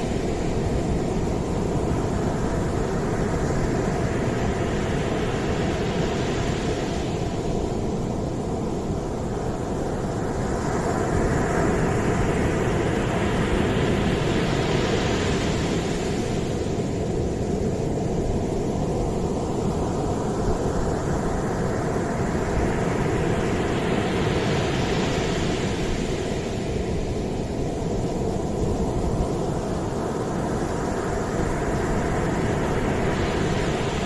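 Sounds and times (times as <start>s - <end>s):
sea surf breaking on beach: 10.6s - 34.0s.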